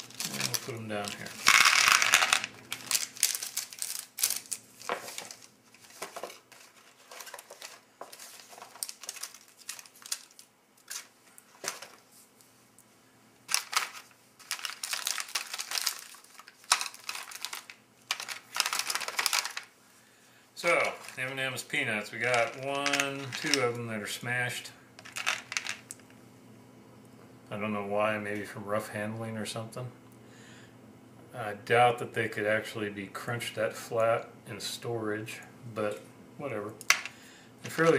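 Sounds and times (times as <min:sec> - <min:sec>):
plastic pouches crinkling: 0:00.0 - 0:12.0, 0:13.5 - 0:19.7, 0:20.6 - 0:23.8, 0:25.0 - 0:26.0, 0:37.7 - 0:37.9.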